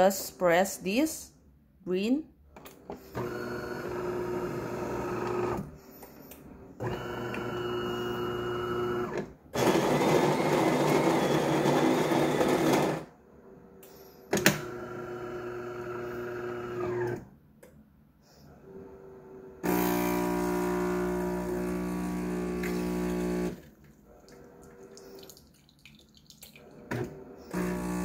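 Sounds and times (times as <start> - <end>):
espresso machine motors humming: 3.1 - 5.6, 6.8 - 13.0, 14.6 - 17.1, 19.6 - 23.6, 26.9 - 28.0.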